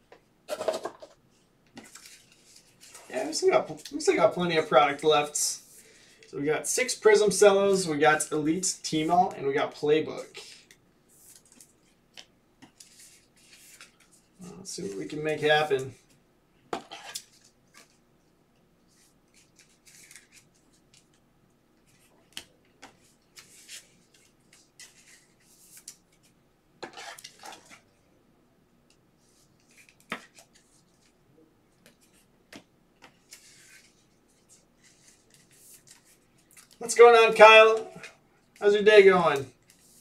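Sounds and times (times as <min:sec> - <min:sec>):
plastic rustling and scraping: 0:00.5 - 0:04.1, 0:22.8 - 0:27.9.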